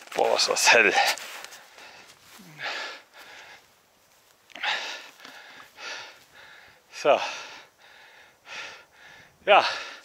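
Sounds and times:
person breathing heavily: 0:01.6 - 0:03.7, 0:04.5 - 0:10.0.

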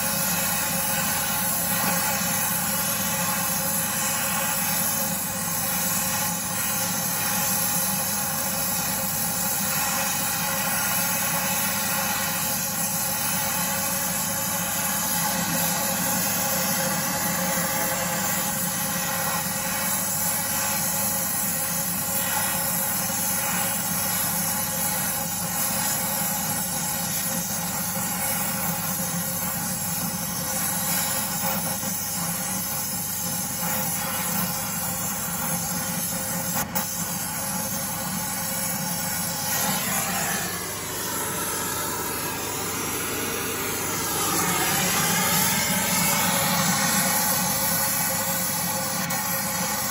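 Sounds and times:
gas torch hissing: 0:00.0 - 0:49.9
steady motor drone: 0:00.0 - 0:49.9.

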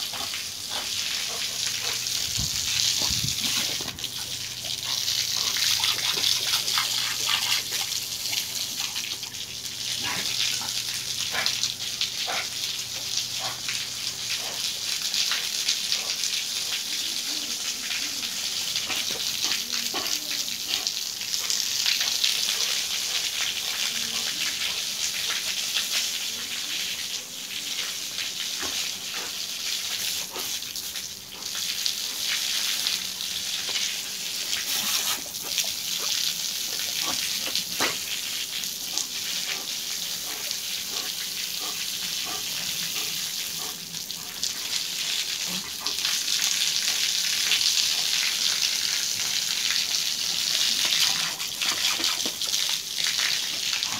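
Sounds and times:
water jet spraying onto concrete: 0:00.0 - 0:53.9
small clicks and splashes: 0:49.2 - 0:53.9.

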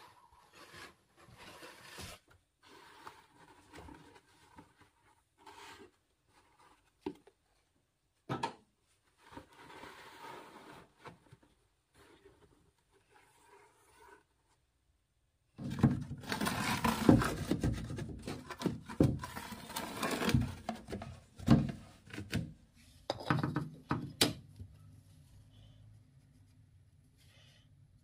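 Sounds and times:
floor board scraping on hard floor: 0:00.0 - 0:06.0, 0:09.2 - 0:11.3, 0:13.0 - 0:14.3, 0:15.8 - 0:21.8.

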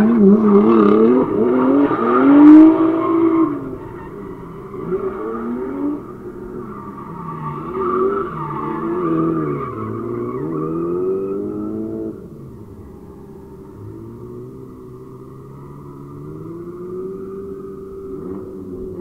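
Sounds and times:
car engines revving: 0:00.0 - 0:19.0
tyre squeal: 0:00.1 - 0:11.7.

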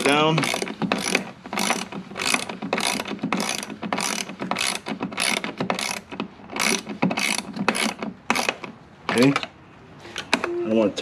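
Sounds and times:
socket ratchet clicking: 0:00.4 - 0:09.5.

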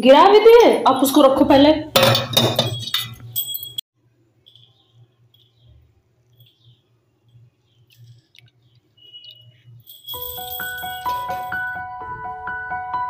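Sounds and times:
metal vessel clinking: 0:02.0 - 0:03.8, 0:04.4 - 0:05.7
soft chirps: 0:04.4 - 0:10.3.

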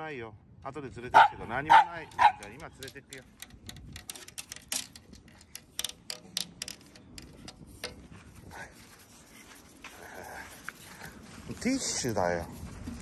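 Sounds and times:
leash clip clicks and taps: 0:01.6 - 0:08.2.

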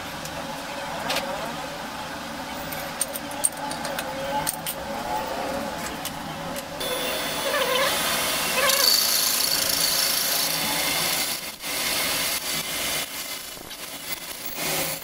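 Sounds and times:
metal lathe cutting steel: 0:06.8 - 0:15.0.

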